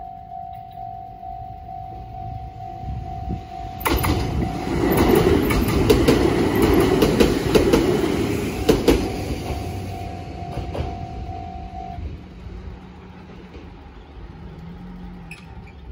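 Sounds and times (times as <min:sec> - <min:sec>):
level crossing warning bell: 0:00.0 - 0:12.2
train wheels clacking over rail joints: 0:03.8 - 0:11.3.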